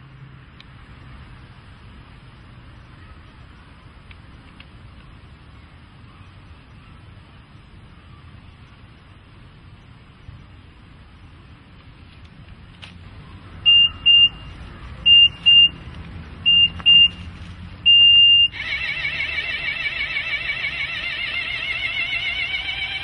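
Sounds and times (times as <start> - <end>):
short high electronic beeps: 13.7 - 14.5, 15.1 - 15.8, 16.5 - 17.2, 17.9 - 18.6
warbling alarm tone: 17.9 - 23.0.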